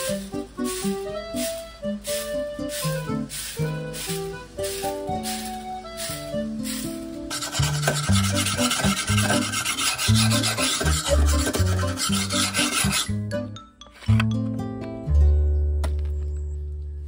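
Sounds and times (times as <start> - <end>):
sponge scrubbing metal blade: 6.7 - 13.2.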